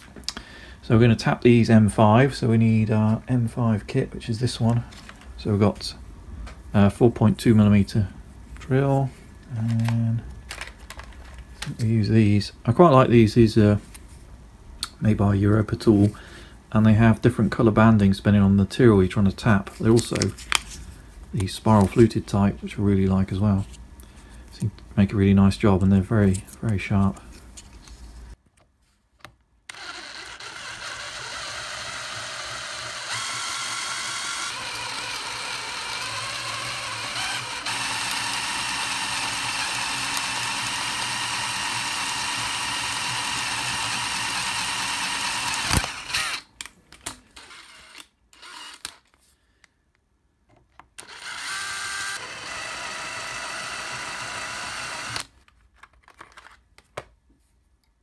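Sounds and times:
power drill drilling metal: 29.7s - 46.5s, 47.4s - 49.0s, 51.0s - 55.3s.

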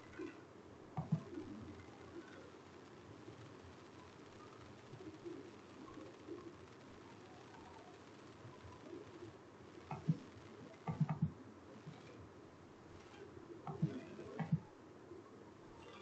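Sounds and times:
faint room noise: 0.0s - 16.0s
computer mouse clicks: 1.0s - 2.4s, 9.8s - 12.2s, 13.0s - 14.6s.

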